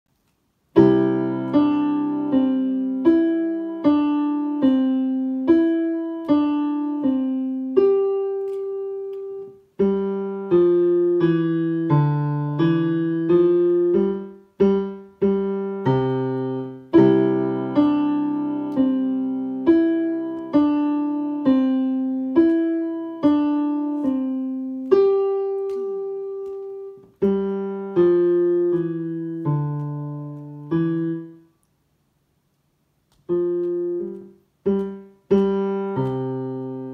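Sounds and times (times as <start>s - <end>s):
slow digital piano piece: 0.2s - 31.7s, 33.0s - 36.9s.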